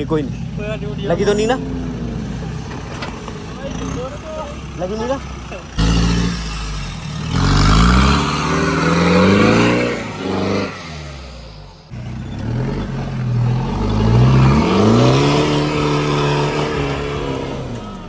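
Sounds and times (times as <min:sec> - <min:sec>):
engine revving hard: 0:05.7 - 0:18.0.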